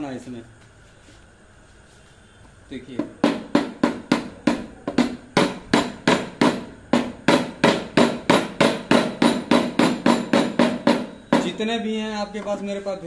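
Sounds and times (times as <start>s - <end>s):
mallet tapping metal: 3.0s - 11.6s.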